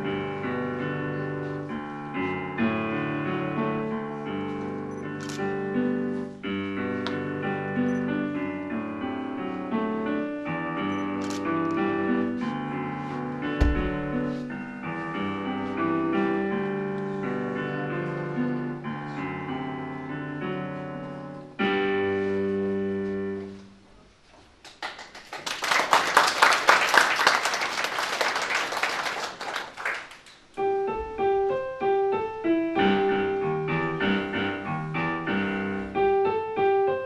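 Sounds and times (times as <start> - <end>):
solo piano playing: 0.0 - 23.5, 30.6 - 37.0
audience clapping: 24.6 - 30.5.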